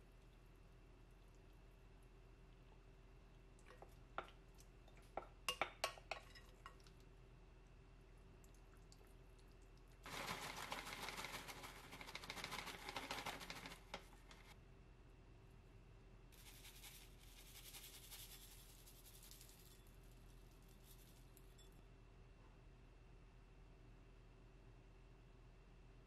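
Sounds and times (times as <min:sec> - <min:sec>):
seeds shaken from plastic shaker: 0:10.0 - 0:14.5, 0:16.4 - 0:21.5
dry flakes rustling from bag: 0:10.1 - 0:13.6, 0:16.4 - 0:21.4.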